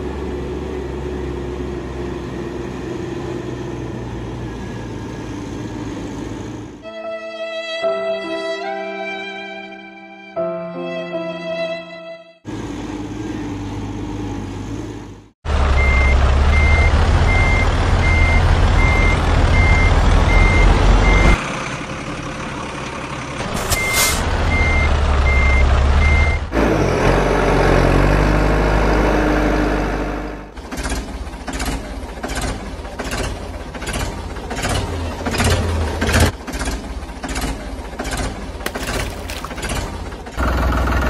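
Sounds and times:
music: 0:06.8 - 0:12.4
reversing beeper: 0:15.8 - 0:21.4, 0:23.5 - 0:26.5
short hiss: 0:23.5 - 0:24.2.

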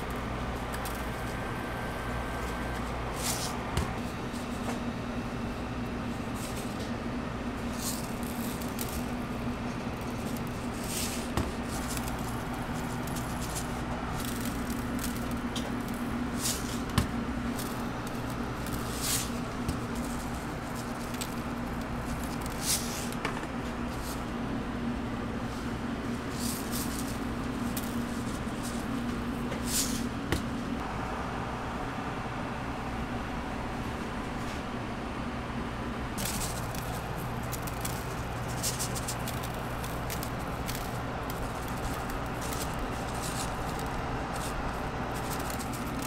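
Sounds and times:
kitchen equipment humming: 0:00.0 - 0:46.0
rustles of hands handling food: 0:07.7 - 0:24.4, 0:36.2 - 0:46.0.

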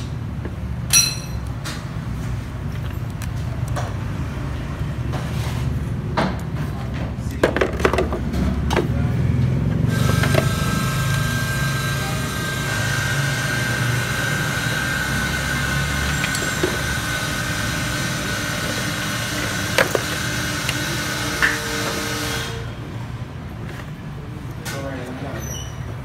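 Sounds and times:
motor running: 0:09.8 - 0:22.7.

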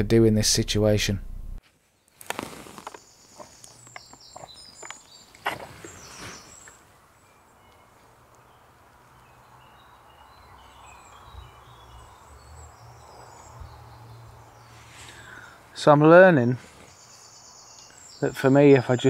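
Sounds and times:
low steady hum: 0:00.0 - 0:01.6
birds chirping: 0:02.0 - 0:19.0.

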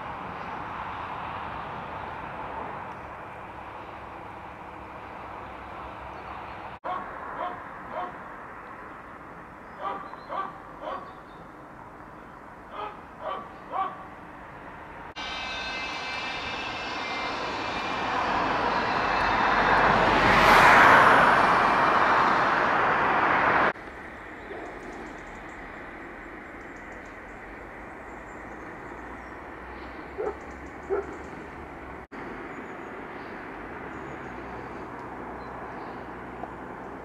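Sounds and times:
dog barking: 0:06.8 - 0:08.2, 0:09.8 - 0:11.1, 0:12.7 - 0:14.1, 0:30.2 - 0:31.2
loud rushing engine: 0:15.0 - 0:23.8.

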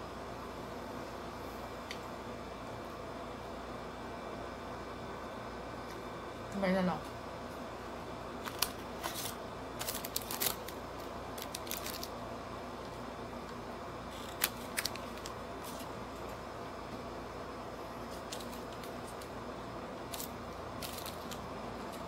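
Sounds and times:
steady low hum: 0:00.0 - 0:22.0
food packaging crinkles: 0:08.4 - 0:12.2, 0:14.1 - 0:16.0, 0:18.1 - 0:19.3, 0:20.1 - 0:22.0.

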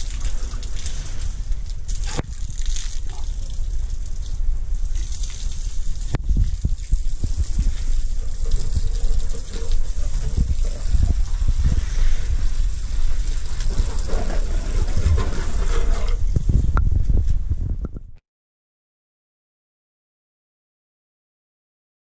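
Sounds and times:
water splashing on ground: 0:00.0 - 0:15.6
water gushing from a hose: 0:00.0 - 0:16.8
steady low rumble: 0:00.0 - 0:18.2.

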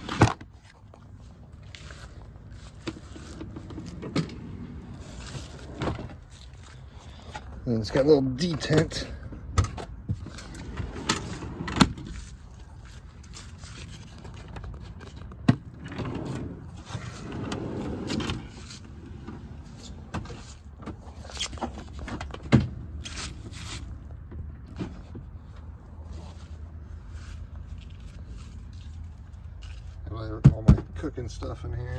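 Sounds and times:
tools and plastic cases clattering: 0:02.8 - 0:06.4, 0:13.2 - 0:23.6
wooden drawers sliding and knocking: 0:15.4 - 0:21.0.

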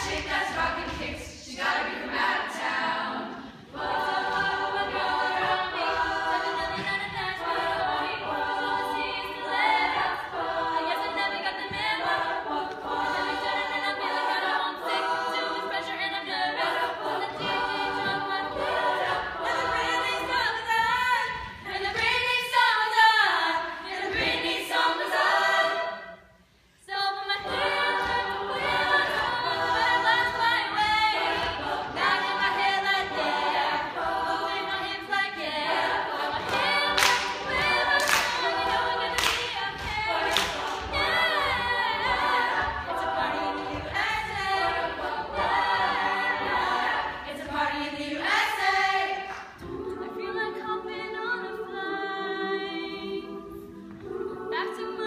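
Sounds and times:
choir singing a pop song: 0:00.0 - 0:55.0.

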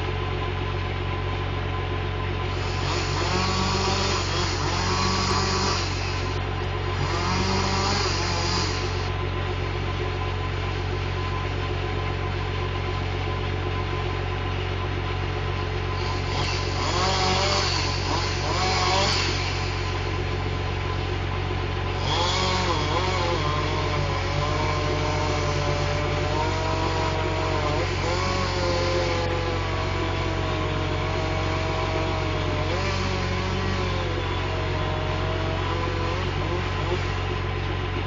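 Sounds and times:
diesel engine idling: 0:00.0 - 0:38.0
chainsaw revving: 0:02.4 - 0:09.2, 0:15.9 - 0:21.0, 0:21.8 - 0:37.5.

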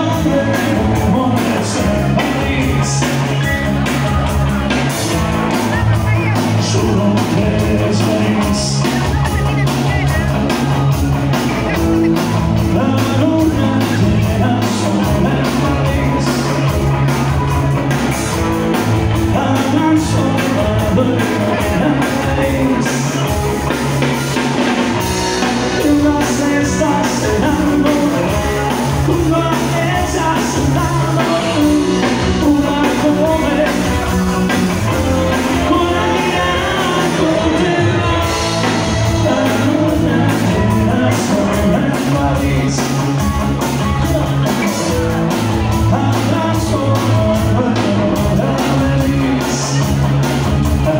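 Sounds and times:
bass line: 0:00.0 - 0:50.9
live band playing amplified music: 0:00.0 - 0:50.9
person singing: 0:00.0 - 0:50.9.

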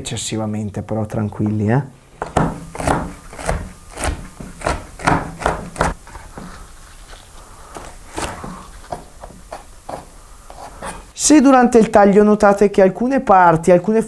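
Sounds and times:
knife striking wooden cutting board: 0:02.2 - 0:06.0.

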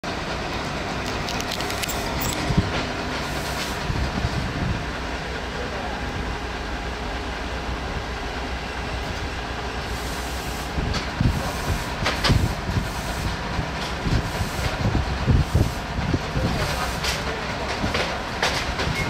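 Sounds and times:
low engine rumble: 0:00.0 - 0:19.0
metallic knocks and clinks: 0:01.1 - 0:02.5.

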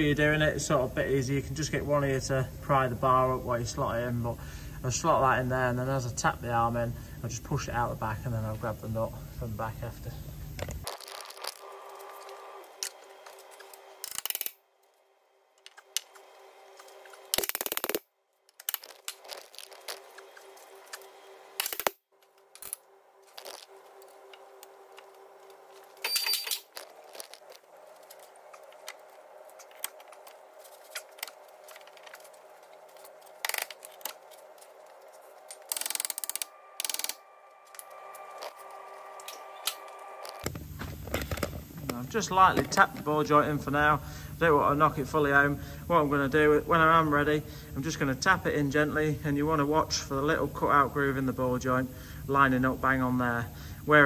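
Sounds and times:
faint steady hum: 0:00.0 - 0:54.0
hand tools clinking on metal: 0:26.0 - 0:27.3.

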